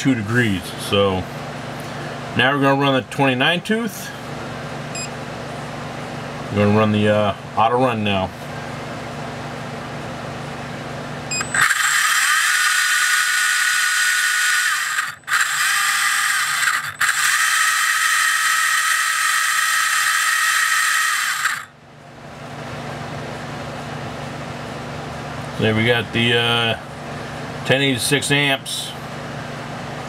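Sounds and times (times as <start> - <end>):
electric motor gear whine: 11.3 - 21.7.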